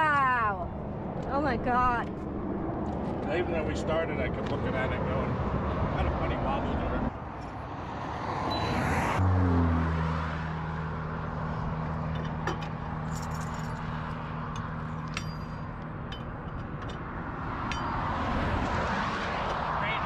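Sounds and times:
road noise: 0.0s - 20.0s
light metallic clinks: 12.1s - 17.0s.

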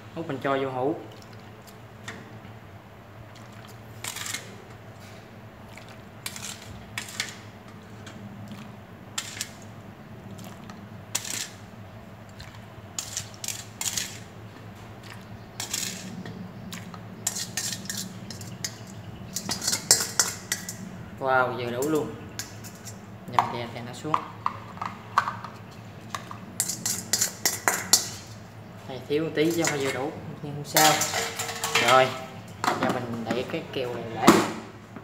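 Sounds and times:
plastic ladle scraping steel bowl: 6.2s - 8.2s, 11.1s - 11.6s, 13.0s - 14.3s, 15.6s - 16.3s, 17.2s - 20.8s, 24.6s - 28.4s, 29.4s - 30.1s.

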